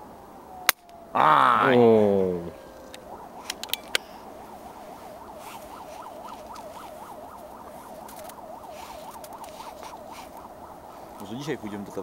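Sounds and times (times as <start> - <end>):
electronic siren yelping: 0.4 - 12.0
sharp clicks: 2.9 - 4.1, 7.4 - 10.5.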